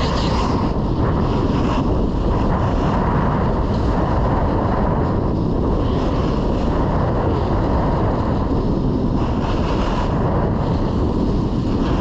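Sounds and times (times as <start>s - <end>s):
snowboard edges scraping ice: 0.0s - 0.8s
wind rushing over microphone: 0.0s - 12.0s.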